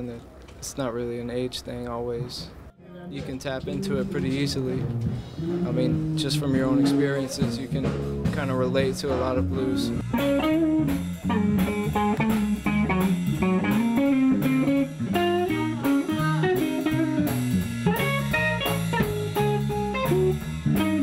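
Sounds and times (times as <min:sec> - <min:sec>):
bass guitar: 0:02.1 - 0:21.0
drums keeping steady beat: 0:03.2 - 0:21.0
electric guitar single-note lines: 0:03.6 - 0:07.5, 0:09.4 - 0:21.0.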